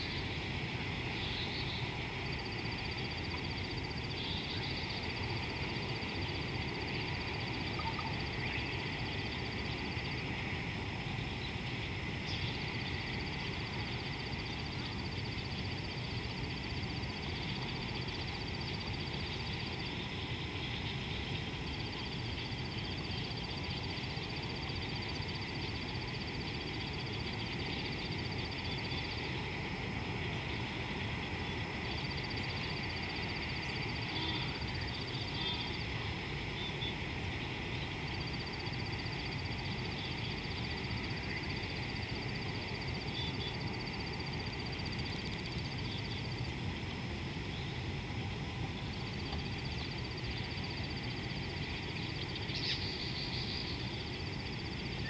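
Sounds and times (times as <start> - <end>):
faint chirps: 1.0 - 10.2, 48.8 - 55.0.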